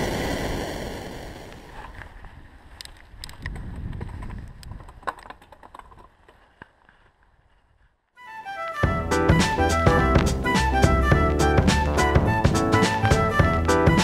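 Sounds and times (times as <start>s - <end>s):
wind on microphone: 0.0s - 5.2s
bike clicks and rattles: 1.8s - 8.0s.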